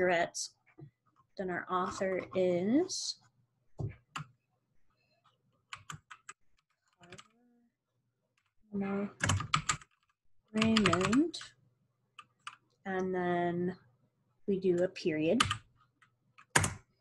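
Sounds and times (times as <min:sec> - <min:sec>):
computer keyboard typing: 0:05.7 - 0:06.4, 0:09.2 - 0:11.5, 0:16.4 - 0:16.9.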